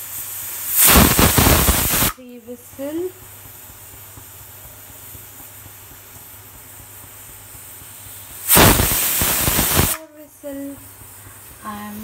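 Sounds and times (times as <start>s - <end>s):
faint steady hiss: 0.0s - 12.0s
pressure cooker whistle: 8.5s - 10.0s.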